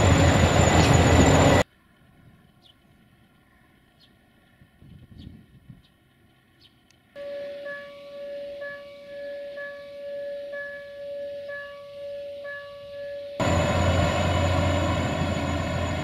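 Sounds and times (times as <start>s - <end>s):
level crossing warning signal: 7.2s - 16.0s
loud steady rumble: 12.8s - 16.0s.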